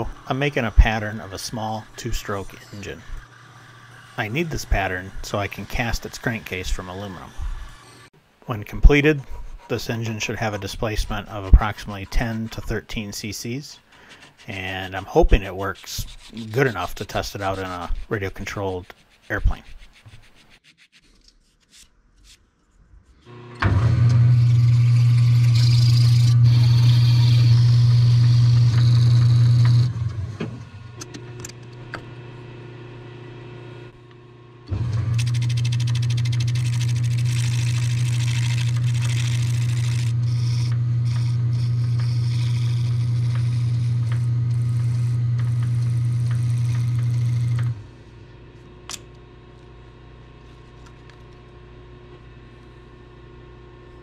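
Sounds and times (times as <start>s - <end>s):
lathe motor hum: 0.0s - 8.1s, 23.3s - 48.5s
tool cutting wood hiss: 0.0s - 8.1s, 24.1s - 29.9s, 35.1s - 47.7s.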